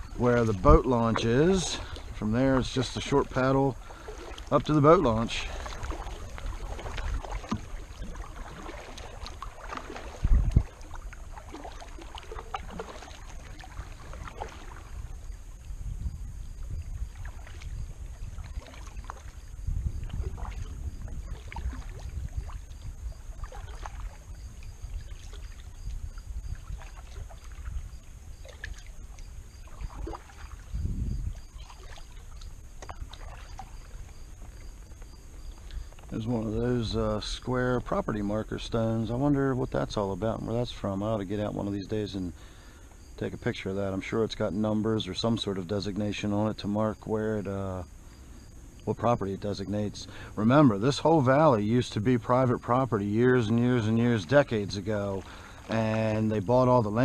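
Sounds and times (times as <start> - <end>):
kayak paddle splashing in water: 0.0 - 38.0, 49.9 - 57.0.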